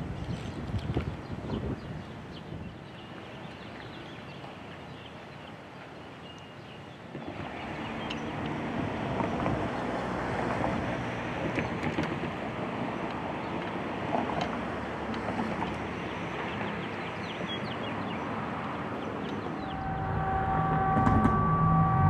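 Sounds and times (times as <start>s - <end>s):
wind: 0.0s - 22.0s
distant traffic: 7.1s - 22.0s
birds chirping: 19.0s - 22.0s
low hum: 19.5s - 22.0s
held chord of high tones: 19.6s - 22.0s.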